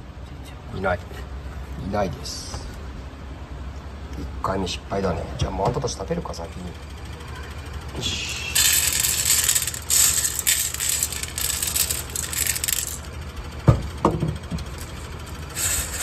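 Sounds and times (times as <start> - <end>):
kibble pouring onto metal tray: 8.6 - 13.0.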